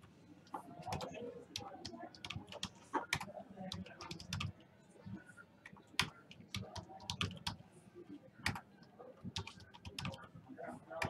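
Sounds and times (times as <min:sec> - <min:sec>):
keyboard typing: 0:00.9 - 0:04.5, 0:06.0 - 0:07.6, 0:09.4 - 0:10.3.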